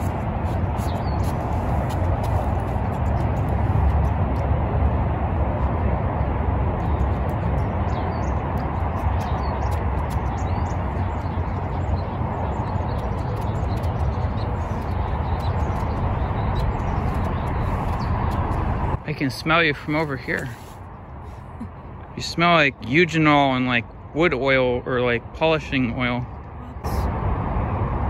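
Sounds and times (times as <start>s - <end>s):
small birds chirping: 0.0s - 3.8s, 6.7s - 26.2s
low outdoor rumble: 0.0s - 28.0s.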